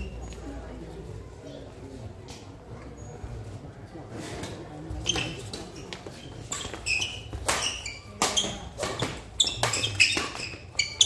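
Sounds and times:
shoes squeaking on court floor: 4.9s - 11.0s
racket hitting shuttlecock: 6.5s - 10.7s.

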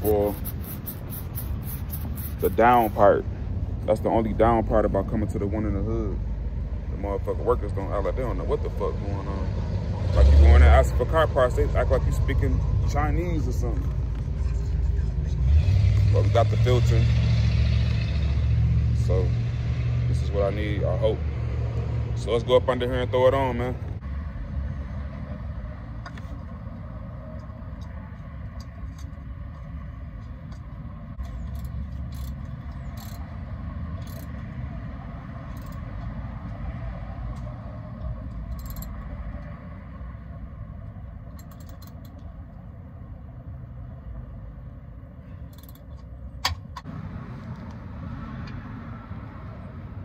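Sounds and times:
hands spinning oil filter: 0.0s - 3.0s.

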